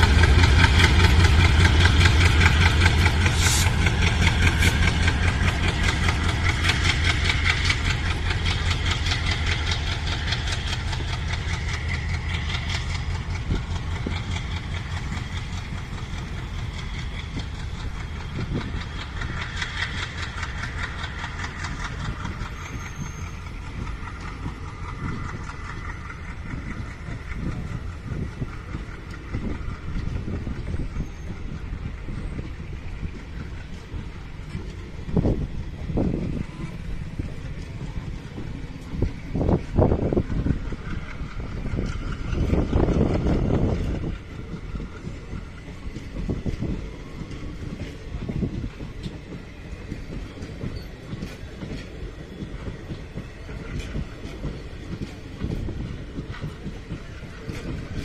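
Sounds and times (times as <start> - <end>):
diesel locomotive engine throbbing: 0.0 - 58.0
train coaches rumbling: 0.0 - 58.0
train wheel knocks: 0.0 - 58.0.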